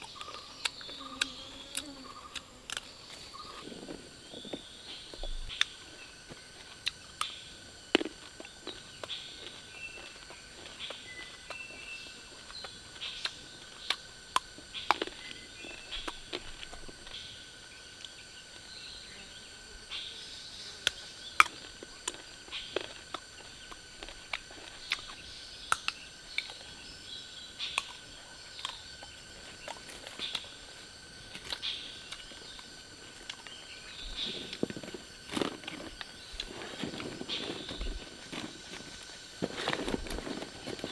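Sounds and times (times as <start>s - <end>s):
birds chirping: 0.0s - 7.7s, 8.3s - 21.6s, 22.2s - 40.9s
insect buzz: 0.0s - 40.9s
rustling: 32.2s - 40.9s.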